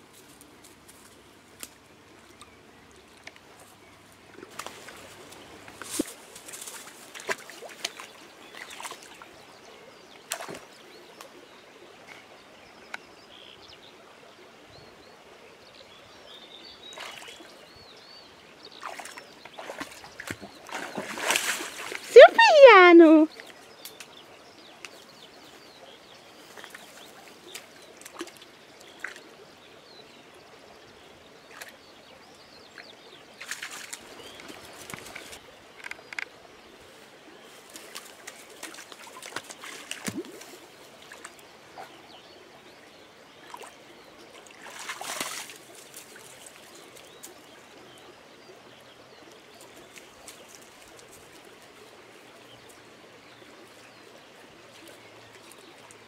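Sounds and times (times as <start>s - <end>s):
running water trickle: 0.0s - 56.0s
dog splashing in water: 18.8s - 22.1s, 37.8s - 40.6s, 44.6s - 46.3s.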